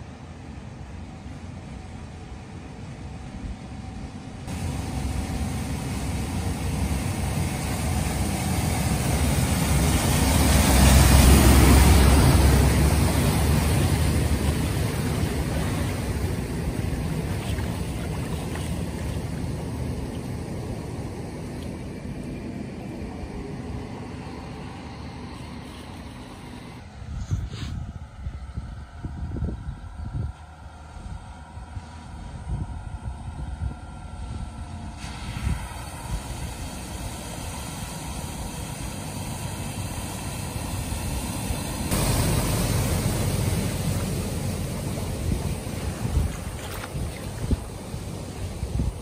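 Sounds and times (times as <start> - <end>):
diesel engine running: 0.0 - 27.1, 28.5 - 49.0
water rushing and splashing: 4.5 - 26.7, 35.0 - 49.0.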